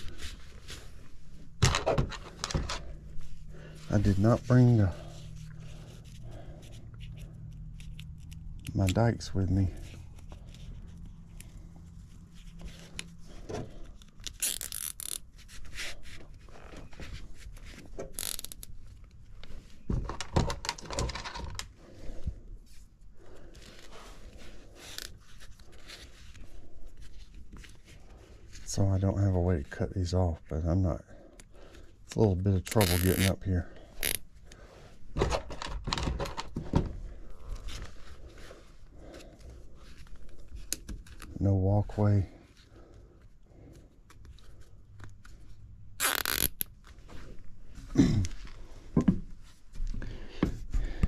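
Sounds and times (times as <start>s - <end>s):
rustling handling noises: 0.0s - 46.0s
light scraping and rubbing: 2.1s - 13.8s
cable tie zipping rasp: 12.3s - 18.8s, 32.7s - 34.2s, 46.0s - 46.8s.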